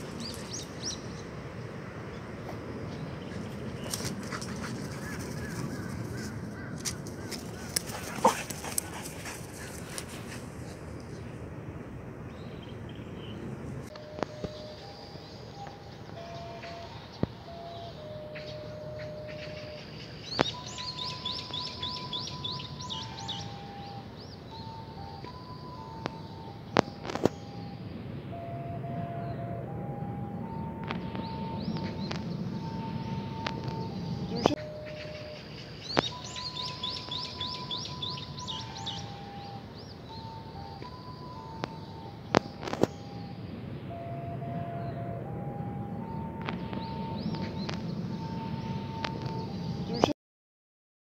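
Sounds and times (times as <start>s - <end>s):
bird chirping: 0.0s - 11.4s, 12.3s - 45.2s, 46.0s - 50.1s
distant ocarina notes: 13.9s - 50.1s.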